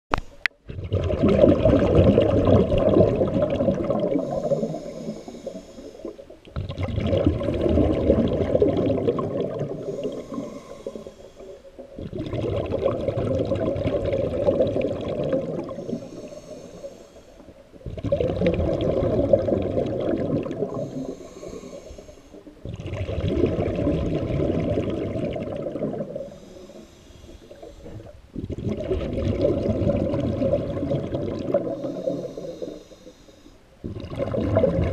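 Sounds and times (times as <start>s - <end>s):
exhaled bubbles rushing: 0.6s - 5.1s, 6.0s - 11.0s, 11.8s - 16.4s, 17.8s - 21.2s, 22.6s - 26.4s, 27.5s - 32.2s, 33.8s - 34.9s
diver breathing through regulator: 3.9s - 6.3s, 9.6s - 11.9s, 15.4s - 17.6s, 20.5s - 22.6s, 26.0s - 28.2s, 31.5s - 33.7s.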